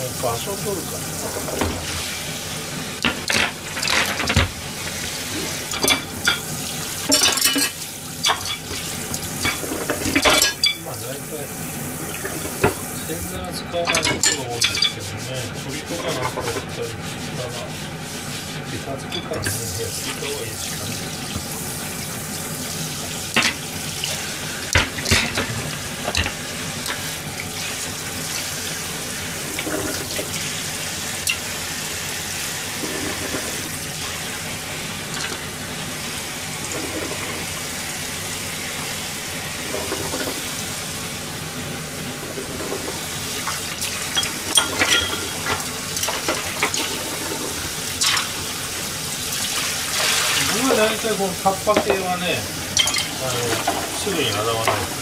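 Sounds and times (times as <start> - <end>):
tap running into metal sink: 1.2 - 1.9
crockery and utensils clinking: 5.7 - 8.8, 9.4 - 11.0, 13.8 - 15.1, 19.1 - 20.4, 44.1 - 47.4, 51.7 - 52.1, 52.8 - 55.0.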